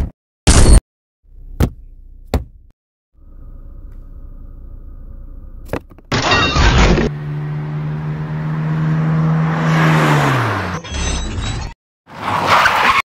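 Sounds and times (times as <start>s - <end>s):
vehicle engine running: 3.2s - 6.2s.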